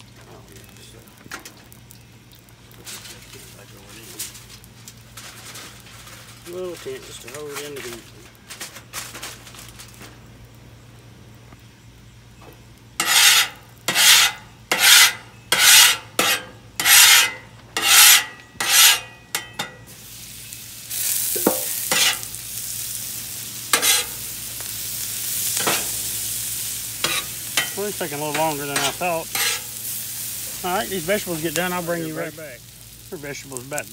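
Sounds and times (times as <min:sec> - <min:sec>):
vegetables sizzling on griddle: 0:00.0 - 0:33.9
metal spatula scraping griddle: 0:13.0 - 0:20.2, 0:20.9 - 0:22.4, 0:23.4 - 0:32.4.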